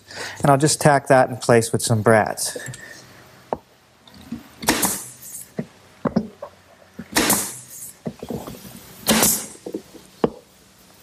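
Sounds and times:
nail gun shots with air hiss: 4.6s - 5.5s, 7.1s - 8.0s, 9.0s - 9.6s.

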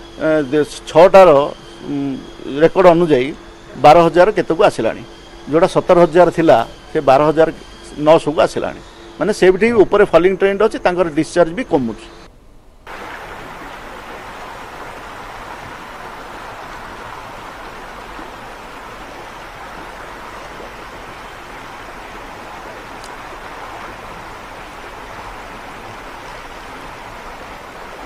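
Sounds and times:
floodwater rushing: 12.9s - 28.0s.

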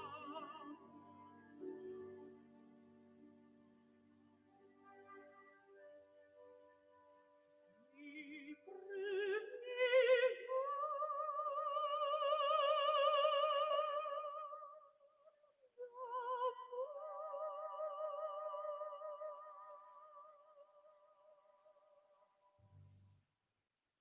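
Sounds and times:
soprano singing opera: 0.0s - 2.0s, 7.8s - 15.0s, 15.7s - 21.1s.

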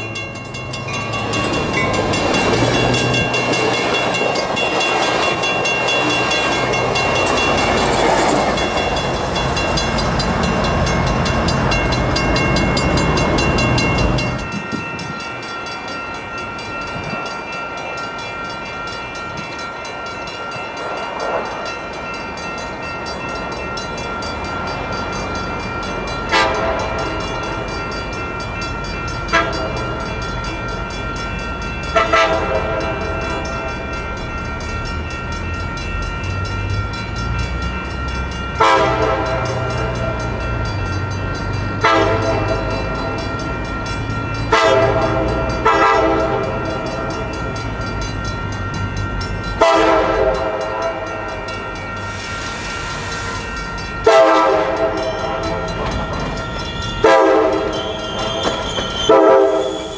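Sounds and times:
train rumble: 0.0s - 59.9s
train air horn blasts: 26.3s - 26.9s, 32.0s - 33.0s, 38.6s - 39.4s, 41.8s - 42.5s, 44.5s - 46.4s, 49.6s - 50.6s, 54.0s - 55.0s, 57.0s - 59.9s.

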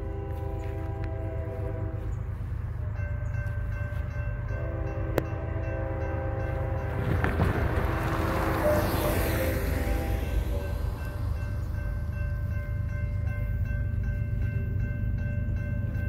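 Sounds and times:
locomotive horn blasts: 0.0s - 11.8s
crossing bell ringing: 0.0s - 16.0s.

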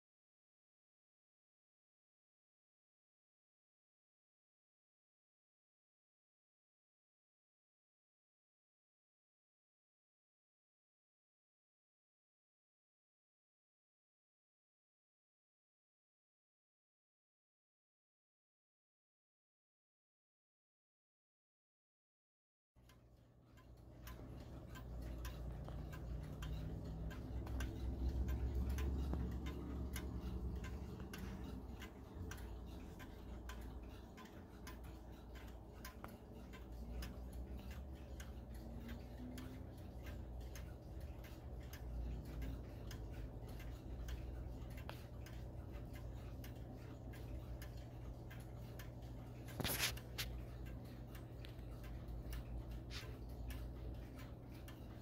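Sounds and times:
low steady hum: 22.8s - 55.0s
wall clock ticking: 22.8s - 55.0s.

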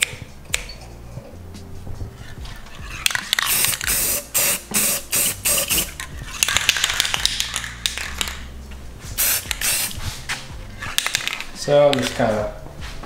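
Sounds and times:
spray paint can hissing: 3.0s - 8.4s, 9.2s - 10.4s.

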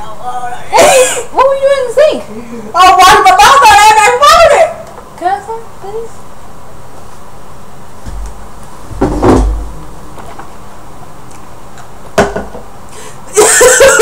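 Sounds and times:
voices: 0.0s - 6.3s
muffled thump and rumble: 8.0s - 10.3s.

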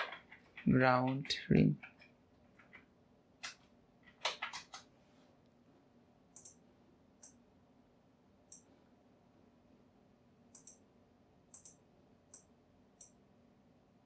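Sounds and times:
computer mouse clicks: 6.3s - 6.6s, 8.5s - 8.7s, 10.5s - 10.8s, 11.5s - 13.2s.

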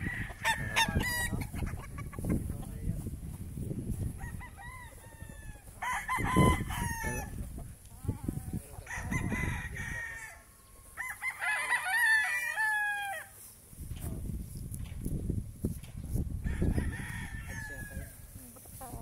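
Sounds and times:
roosters crowing: 0.0s - 2.4s, 3.9s - 13.6s, 16.3s - 18.8s.

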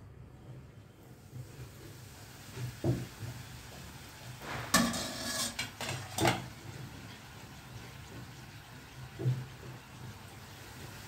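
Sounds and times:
metal utensils clinking on cookware: 4.7s - 6.5s.

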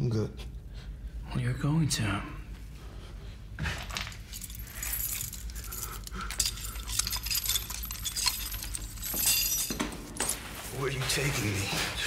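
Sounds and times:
metal chains clinking: 3.8s - 10.4s.

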